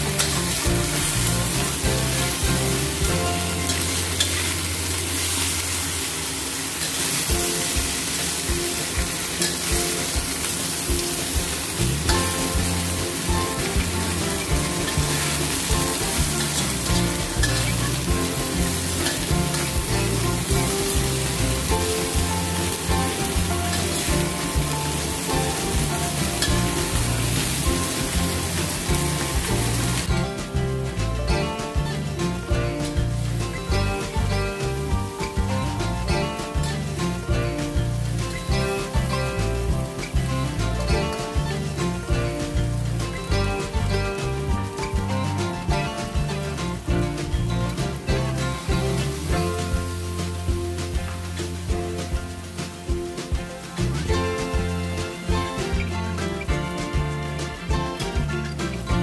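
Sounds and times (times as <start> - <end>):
metal spatula stirring in wok: 0.0 - 30.1
fish sizzling in oil: 0.0 - 31.0, 31.8 - 58.2.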